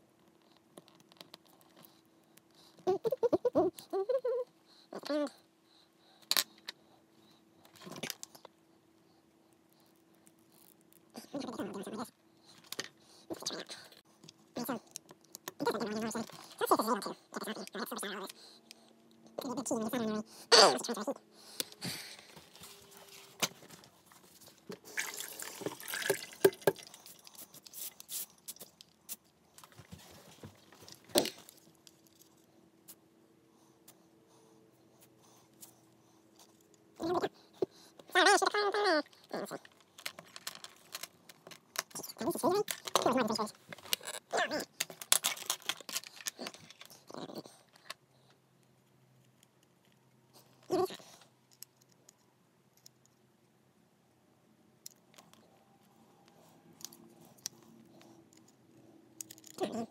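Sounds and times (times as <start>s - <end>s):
water splashing in a steel sink: 25.0s - 27.0s
small objects rattling on desk: 39.5s - 47.0s.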